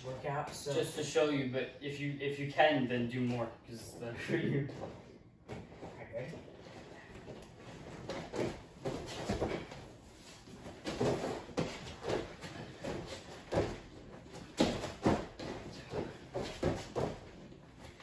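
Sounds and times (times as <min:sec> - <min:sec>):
thuds on gym mats: 0:08.0 - 0:09.8, 0:10.7 - 0:17.3.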